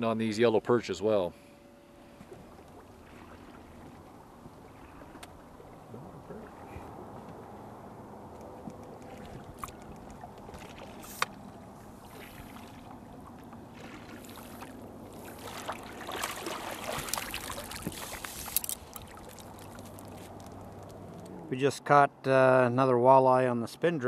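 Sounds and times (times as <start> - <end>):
water splashing and dripping: 8.8 - 21.3.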